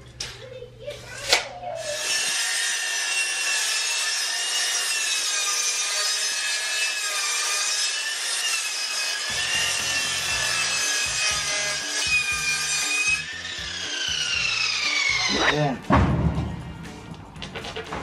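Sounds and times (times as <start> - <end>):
miter saw cutting board: 1.9 - 15.6
low rumble: 15.3 - 17.5.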